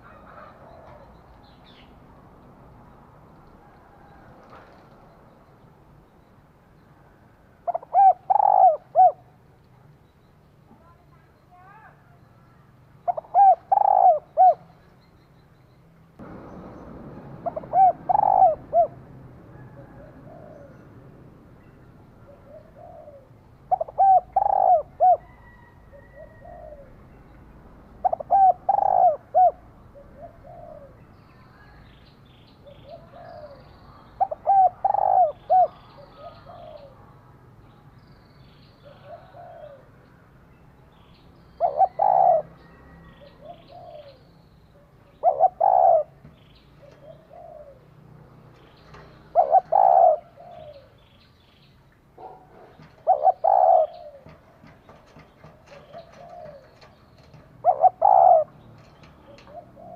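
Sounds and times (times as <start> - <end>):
dove cooing: 7.6 - 9.4, 13.0 - 14.7, 17.4 - 21.1, 22.2 - 27.0, 28.0 - 31.0, 32.6 - 37.0, 38.8 - 40.0, 41.6 - 44.3, 45.1 - 48.0, 48.9 - 51.1, 52.2 - 59.9.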